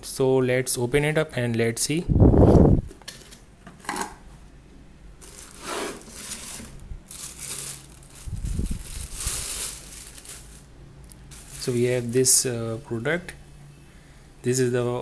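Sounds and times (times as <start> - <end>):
plastic bag crinkling: 5.2 - 12.4.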